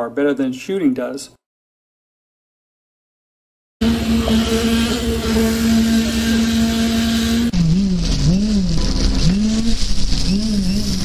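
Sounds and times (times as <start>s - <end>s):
concrete vibrator humming: 3.8s - 11.0s
vibrator hum sagging in pitch: 3.8s - 11.0s.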